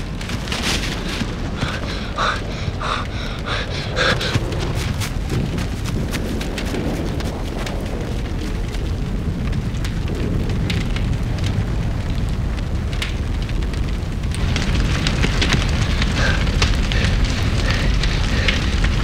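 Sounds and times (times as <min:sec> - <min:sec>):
fire crackles and pops: 0:00.0 - 0:19.0
fire roaring: 0:00.0 - 0:19.0.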